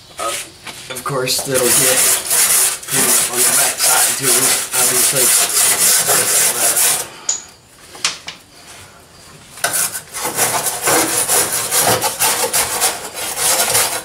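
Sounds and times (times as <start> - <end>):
wire brush scraping metal: 1.1 - 7.1, 9.6 - 14.0.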